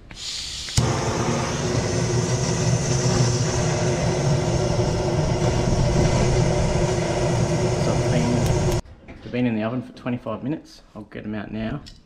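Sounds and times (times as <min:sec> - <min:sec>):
blowtorch hissing: 0:00.2 - 0:08.8.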